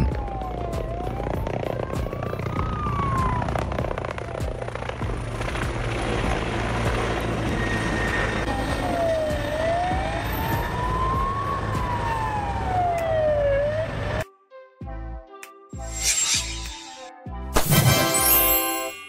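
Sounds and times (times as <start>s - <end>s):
siren wailing: 0.0s - 3.8s, 7.6s - 14.2s
helicopter rotor beating: 0.0s - 11.4s.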